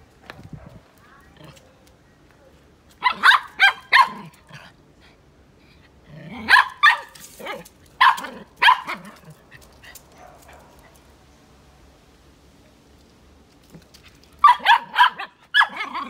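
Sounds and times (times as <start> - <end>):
small dog barking: 3.0 - 4.3, 6.4 - 9.2, 14.4 - 16.0.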